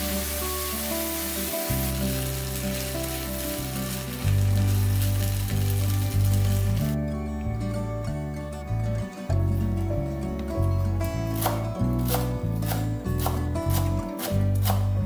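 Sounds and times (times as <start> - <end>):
food sizzling in a pan: 0.0 - 7.0
background music with bass: 0.0 - 15.0.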